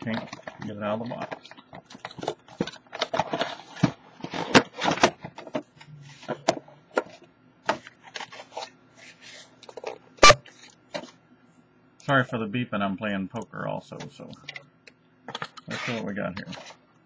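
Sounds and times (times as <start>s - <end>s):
cardboard and packaging rustling: 0.0s - 11.2s, 15.4s - 16.8s.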